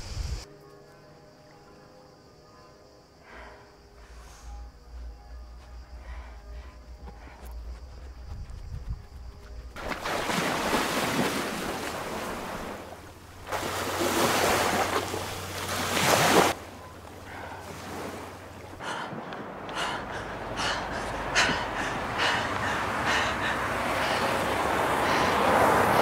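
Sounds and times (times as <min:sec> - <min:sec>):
short water splashes: 0:09.8 - 0:16.6
surf washing: 0:09.8 - 0:26.0.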